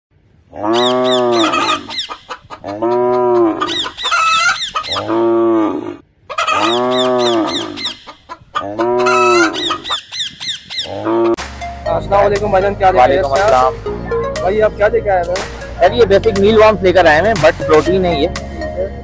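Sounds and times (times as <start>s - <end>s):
cow mooing: 0.5s - 1.9s, 2.7s - 3.8s, 4.9s - 7.8s, 8.6s - 9.7s, 10.9s - 11.4s
birds chirping and clucking: 0.6s - 11.4s.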